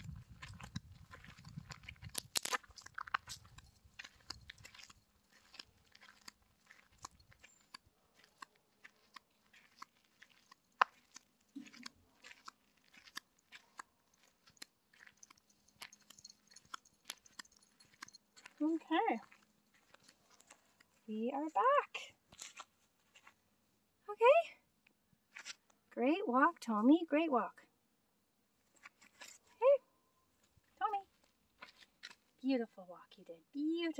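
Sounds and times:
footsteps on gravel: 0:00.0 - 0:21.0, 0:22.3 - 0:23.4, 0:31.1 - 0:32.4.

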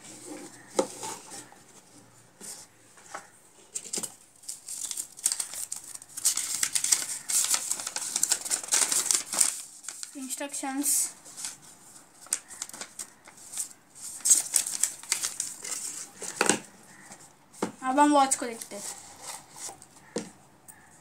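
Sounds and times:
paper leaflet rustling: 0:00.2 - 0:20.1.

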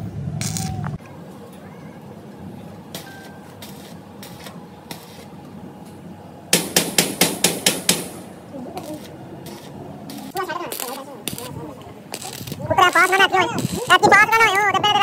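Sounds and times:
hammer striking steel frame: 0:06.5 - 0:08.4.

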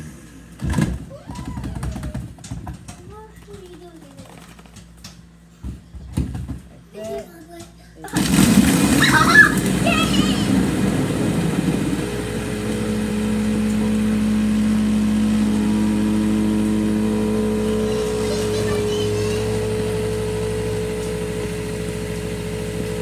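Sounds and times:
blender motor whirring: 0:08.1 - 0:23.0.

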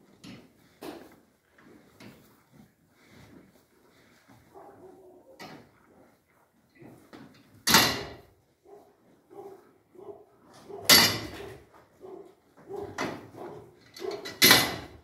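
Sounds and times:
cows chewing hay: 0:00.0 - 0:07.6.

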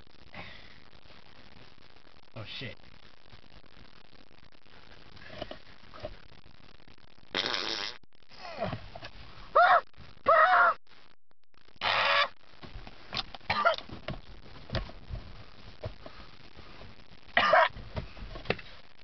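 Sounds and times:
muffled vocal noises: 0:08.3 - 0:08.9.

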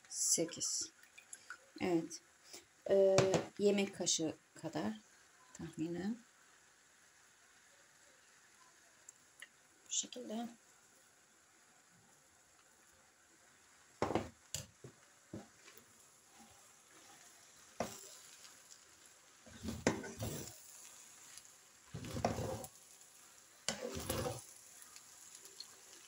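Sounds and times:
noodles sizzling in pan: 0:00.0 - 0:26.0
stirring and tossing with tongs: 0:12.0 - 0:26.0
utensils knocking against pan: 0:19.7 - 0:20.4.

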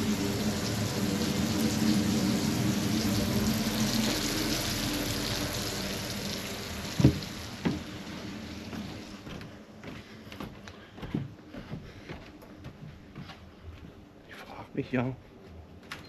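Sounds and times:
food sizzling in a frying pan: 0:00.0 - 0:09.2.

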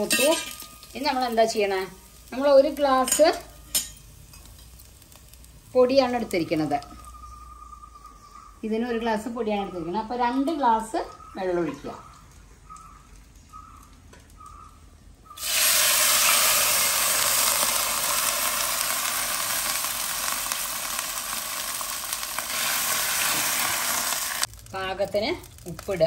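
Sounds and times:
water sizzling in hot oil: 0:00.0 - 0:07.2, 0:15.4 - 0:26.0.

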